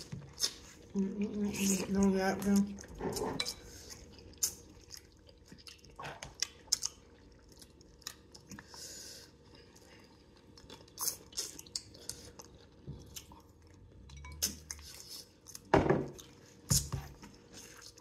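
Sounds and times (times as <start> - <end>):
person chewing with lip smacks: 3.9 - 8.8, 9.6 - 18.0.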